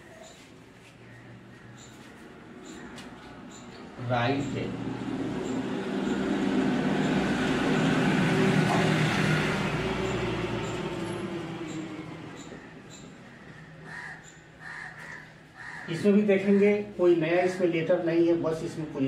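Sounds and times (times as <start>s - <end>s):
passing vehicle engine hum: 1.1s - 13.8s.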